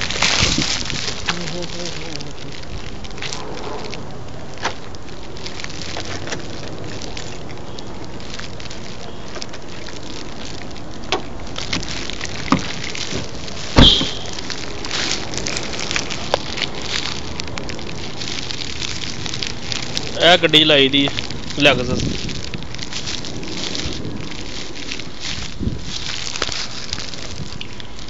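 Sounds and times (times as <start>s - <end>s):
loud thump: 13.8s - 14.2s.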